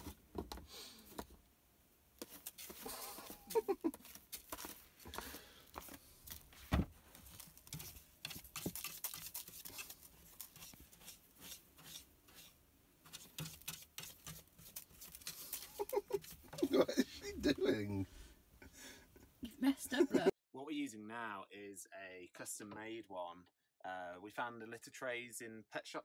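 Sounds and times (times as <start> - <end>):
cat scratching in litter: 2.2 - 16.9
thump: 6.6 - 7.0.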